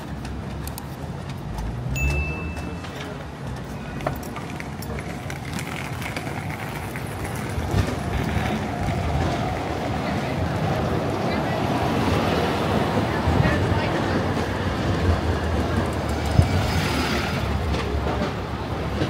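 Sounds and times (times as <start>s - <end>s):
road traffic passing: 0.0s - 19.0s
brief high beep: 2.0s - 3.0s.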